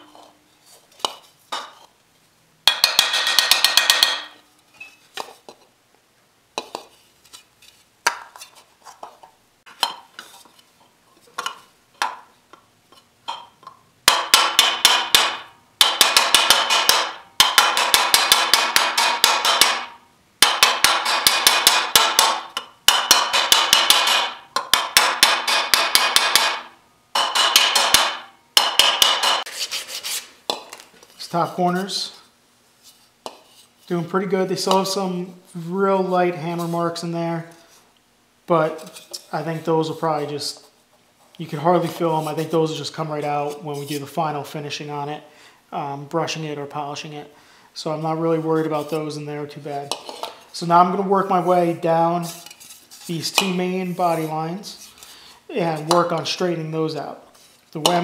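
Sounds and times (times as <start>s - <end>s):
hammer striking thin metal: 2.6s - 4.4s, 14.1s - 29.6s.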